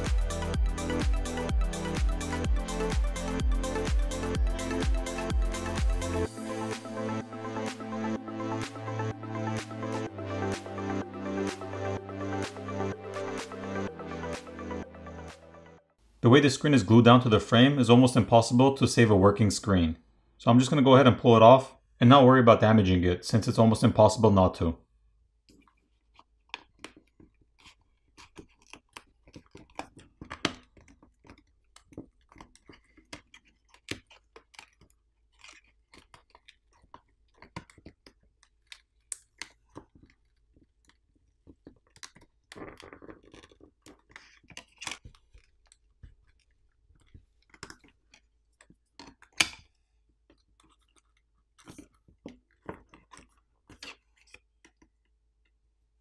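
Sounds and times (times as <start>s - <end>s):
adhesive crackling and clicking: 25.5s - 55.6s.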